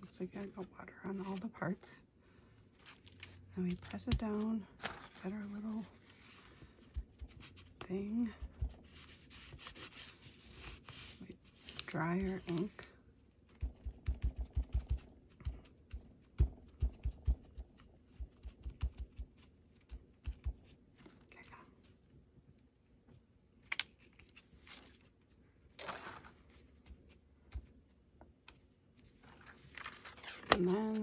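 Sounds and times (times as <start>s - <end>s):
paper rustling and scraping: 2.8s - 7.8s, 8.5s - 12.9s, 29.0s - 31.0s
sponge tapping on paper: 13.6s - 20.6s.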